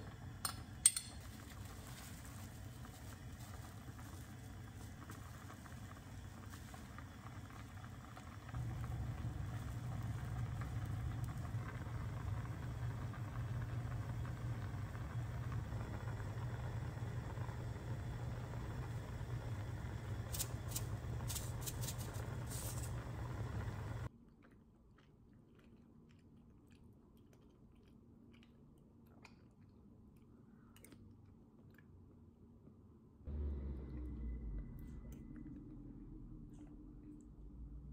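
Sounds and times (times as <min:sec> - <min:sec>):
soup boiling on gas flame: 0:00.0 - 0:24.1
chewing: 0:24.2 - 0:32.1.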